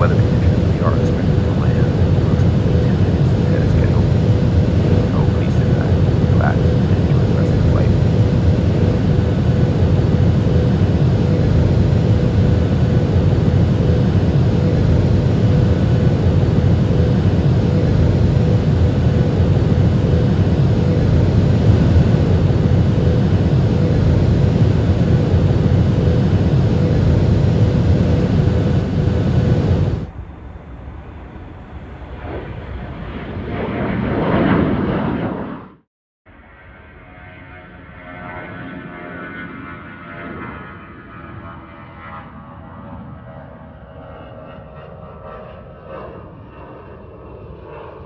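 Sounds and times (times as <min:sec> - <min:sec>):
faint constant hum: 0:00.0 - 0:33.1
jet engines roaring in cabin: 0:00.0 - 0:35.9, 0:36.5 - 0:48.0
jet airliner flying overhead: 0:00.0 - 0:48.0.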